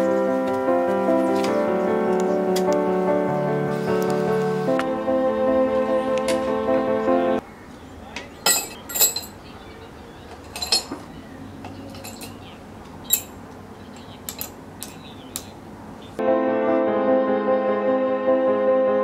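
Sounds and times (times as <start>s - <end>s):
metal tongs clinking on crucible: 8.5s - 9.4s, 10.4s - 11.0s, 11.9s - 12.4s, 13.1s - 13.4s.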